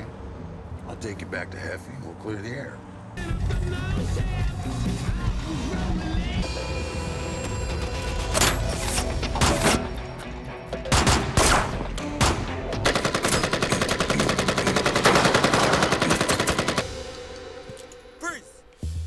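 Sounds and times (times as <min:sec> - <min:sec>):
automatic gunfire: 0:10.9 - 0:16.9.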